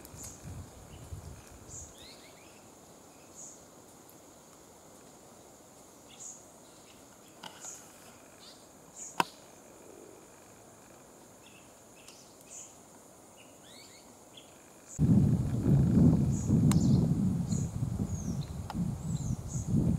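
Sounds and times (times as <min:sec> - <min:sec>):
insect drone: 0:00.0 - 0:19.9
bird chirps: 0:01.7 - 0:03.6, 0:13.4 - 0:15.0.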